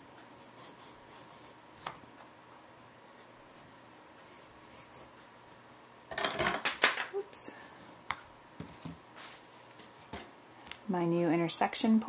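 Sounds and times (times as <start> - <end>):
pencil scratching on paper: 0.4 - 1.6, 4.2 - 5.2.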